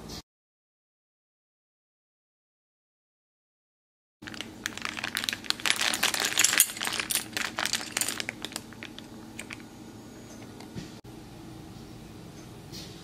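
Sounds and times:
plastic bag crinkling: 4.2s - 9.6s
metal pieces clinking: 4.3s - 9.6s.

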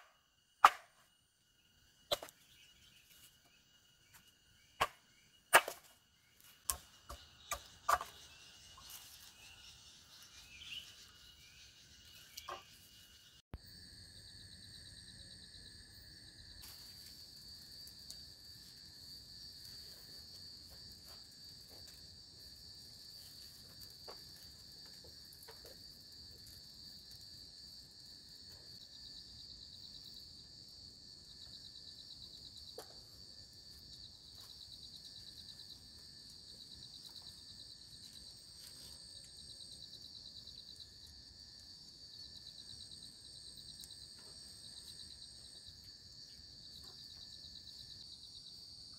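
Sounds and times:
night insects trilling: 0.0s - 48.9s
campfire crackling: 15.4s - 28.8s.

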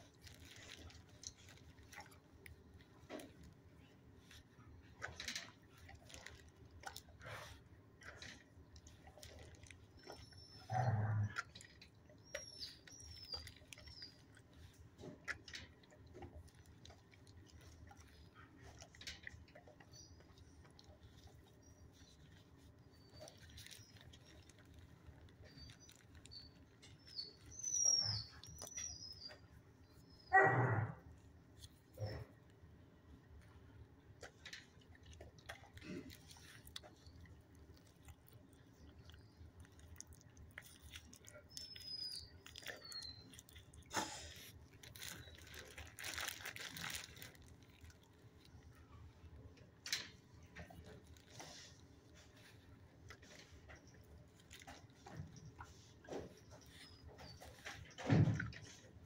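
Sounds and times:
dog barking: 30.3s - 31.0s.

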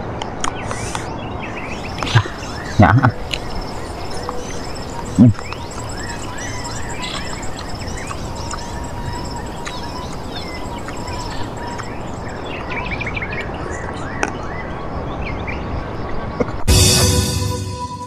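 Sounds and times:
outdoor background noise: 0.0s - 17.1s
birds chirping and calling: 0.5s - 14.7s.

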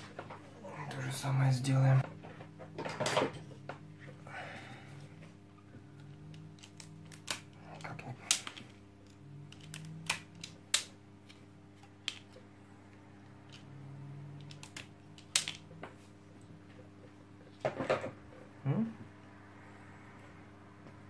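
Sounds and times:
faint steady hum: 0.0s - 21.0s
wire stripper clicking: 14.4s - 15.6s.

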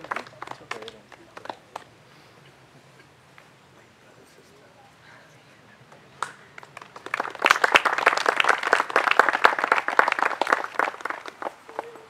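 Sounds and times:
audience applauding: 0.0s - 1.8s, 6.2s - 12.0s.

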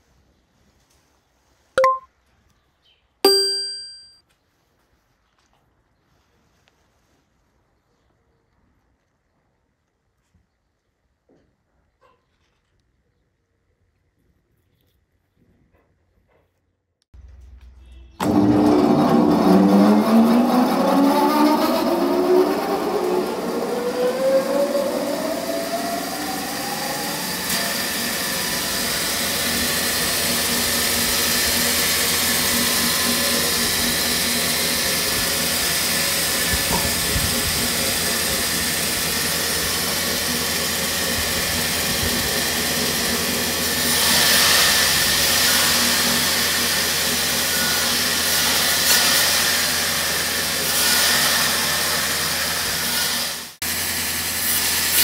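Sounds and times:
band saw running: 18.2s - 55.0s
saw blade rasping through wood: 27.5s - 53.6s.

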